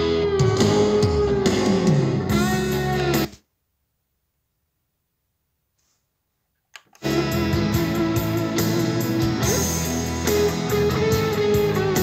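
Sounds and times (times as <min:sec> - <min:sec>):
electric guitar music from speakers: 0:00.0 - 0:03.4, 0:07.0 - 0:12.0.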